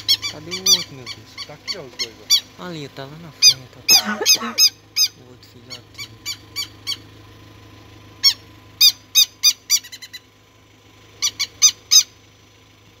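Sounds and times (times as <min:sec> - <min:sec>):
lapwing harsh alarm calls: 0:00.0 - 0:02.6, 0:03.3 - 0:07.1, 0:08.2 - 0:10.3, 0:11.1 - 0:12.2.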